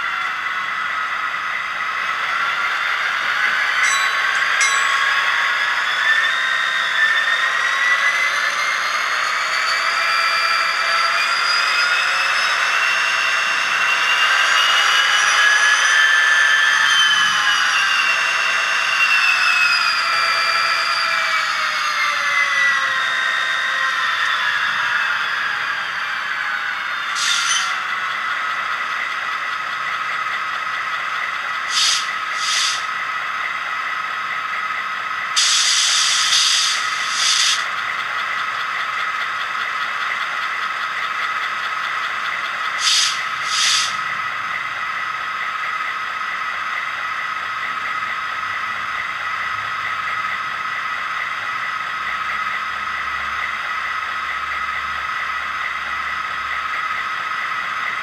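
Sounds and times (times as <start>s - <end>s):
model locomotive diesel idle: 0.0s - 58.0s
air hiss bursts: 27.2s - 27.5s, 31.7s - 32.9s, 35.4s - 37.7s, 42.8s - 44.0s.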